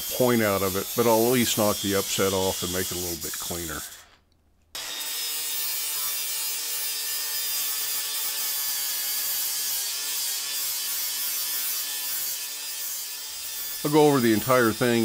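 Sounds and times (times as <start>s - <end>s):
angle grinder grinding steel: 0.0s - 4.2s, 4.8s - 15.0s.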